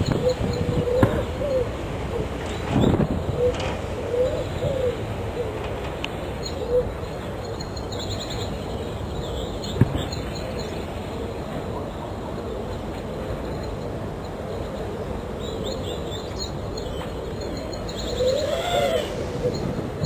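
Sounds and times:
steady hiss: 0.0s - 20.0s
bird cooing: 0.1s - 2.4s, 3.3s - 5.6s, 18.0s - 19.8s.

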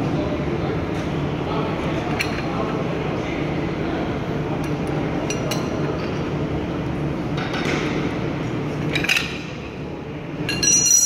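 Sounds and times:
metallic clink: 10.5s - 11.0s.

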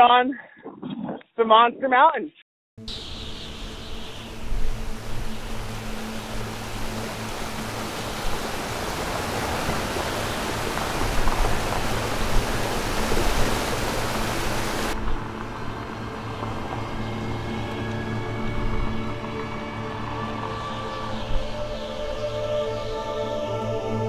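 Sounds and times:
steady rushing hiss: 2.8s - 23.0s
music with low sustained notes: 2.8s - 24.0s.

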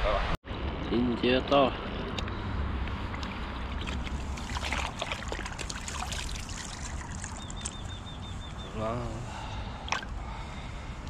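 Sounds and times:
low wind rumble: 0.0s - 11.0s
water sloshing and splashing: 2.9s - 8.0s, 9.8s - 10.2s.

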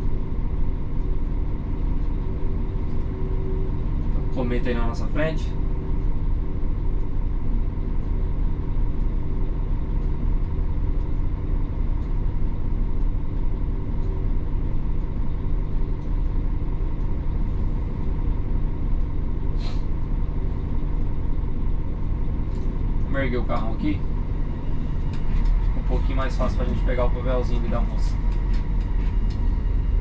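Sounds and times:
diesel bus engine idling: 0.0s - 30.0s
air release hiss: 19.6s - 19.9s.

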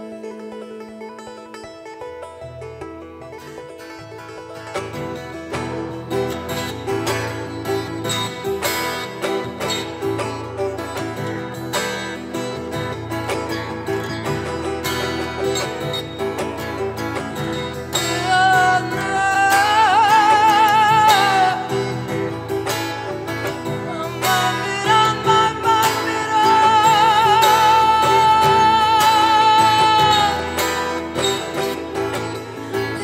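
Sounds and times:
plucked lute and guitar: 0.0s - 33.0s
woman singing wordless notes: 18.0s - 22.1s, 23.8s - 31.6s.

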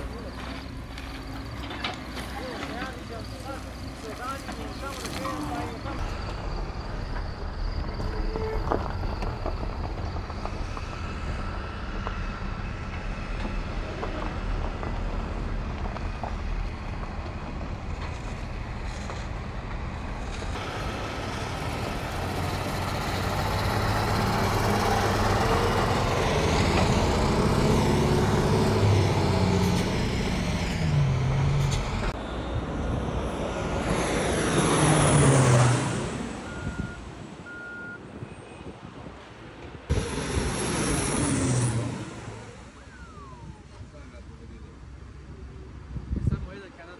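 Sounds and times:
vehicle engines rumbling: 0.0s - 46.9s
propeller plane flying overhead: 19.8s - 36.6s, 39.9s - 43.7s.

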